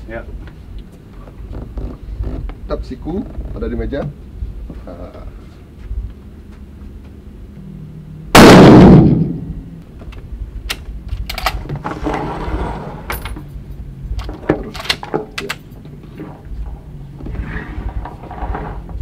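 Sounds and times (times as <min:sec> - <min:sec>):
rifle shot: 0:08.4 - 0:09.6.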